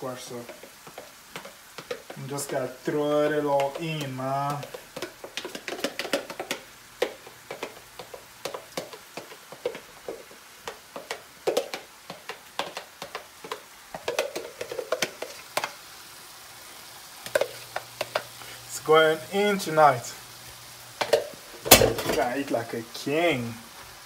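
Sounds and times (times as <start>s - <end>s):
faint pan sizzle: 0.0s - 24.0s
sauce dropping with clicks and taps: 0.5s - 15.8s, 21.0s - 22.3s.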